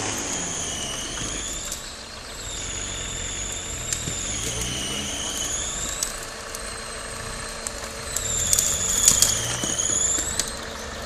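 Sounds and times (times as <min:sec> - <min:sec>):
high-pitched whine: 0:00.0 - 0:11.0
off-road engine running low revs: 0:00.0 - 0:11.0
sharp clicks: 0:03.8 - 0:06.7, 0:07.6 - 0:10.8.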